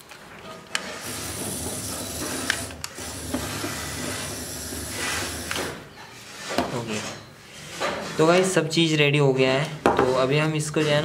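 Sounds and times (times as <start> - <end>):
small motor whirring: 1.0 - 5.8.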